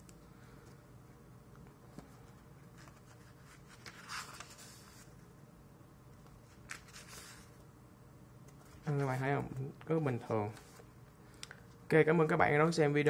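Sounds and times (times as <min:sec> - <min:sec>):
book pages rustling: 0:01.9 - 0:05.2, 0:06.2 - 0:07.6.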